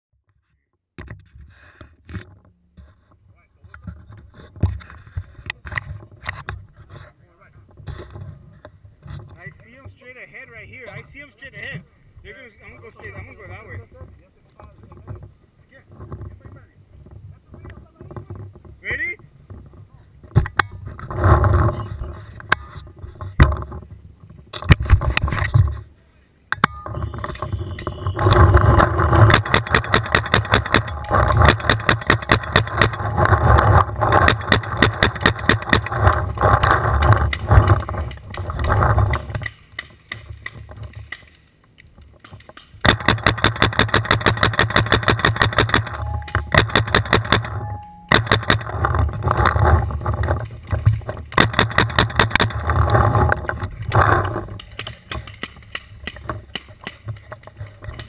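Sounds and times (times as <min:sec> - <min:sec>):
paintball markers firing: 0:27.3 - 0:33.0, 0:33.7 - 0:41.4, 0:42.2 - 0:47.5, 0:48.1 - 0:49.9, 0:50.8 - 0:52.8, 0:53.9 - 0:58.0.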